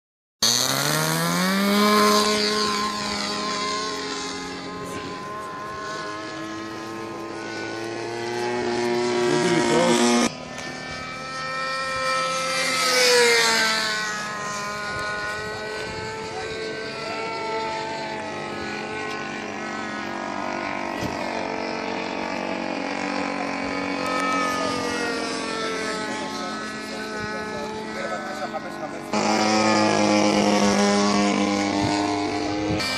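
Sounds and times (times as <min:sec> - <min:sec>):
model airplane engine: 0:00.4 - 0:32.9.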